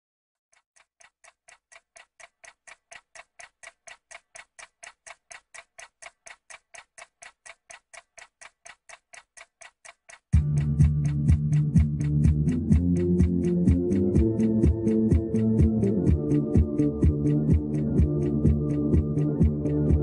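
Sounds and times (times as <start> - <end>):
rapid clock-like ticking: 0.5 - 20.0
electronic music with heavy beat: 10.4 - 20.0.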